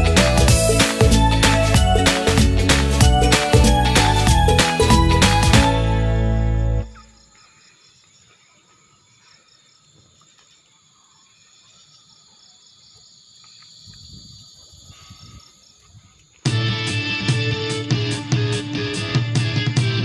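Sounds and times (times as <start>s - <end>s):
loud guitar music: 0.0s - 7.0s, 16.5s - 20.0s
crickets chirring: 6.2s - 16.5s.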